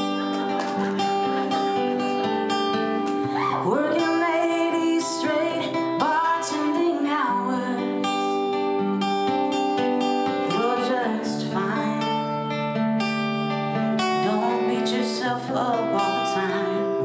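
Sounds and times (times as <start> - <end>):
strummed acoustic guitar: 0.0 - 17.0
woman singing: 3.1 - 8.8, 10.2 - 12.4, 14.0 - 17.0.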